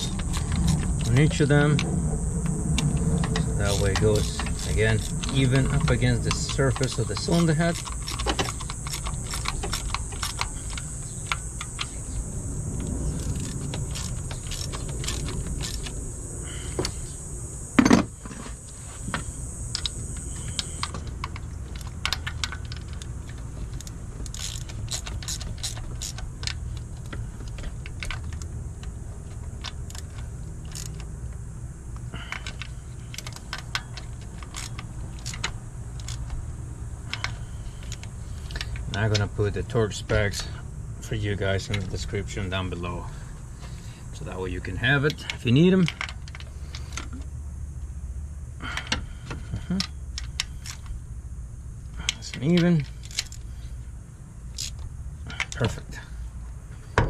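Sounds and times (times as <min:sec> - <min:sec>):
ratchet clicks: 0:00.0 - 0:31.4, 0:32.0 - 0:40.6, 0:44.8 - 0:47.2, 0:52.0 - 0:53.6, 0:54.5 - 0:55.7.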